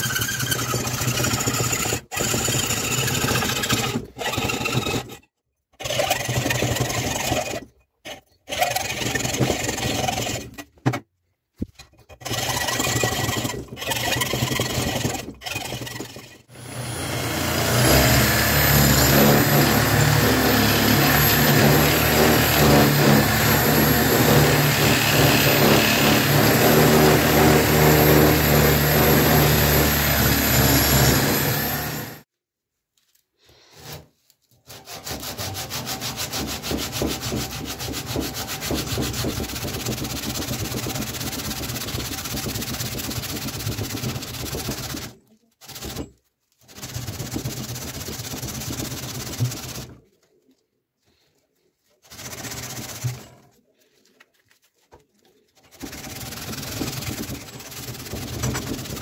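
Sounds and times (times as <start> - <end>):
rotary tool grinding whine: 0.0 - 10.9, 11.7 - 32.2
hacksaw cutting wood: 0.0 - 32.3, 33.7 - 50.0, 52.0 - 53.4, 55.6 - 59.0
sandpaper rubbing wood: 12.2 - 32.2, 33.7 - 46.1, 46.7 - 49.9, 51.8 - 53.2, 55.5 - 59.0.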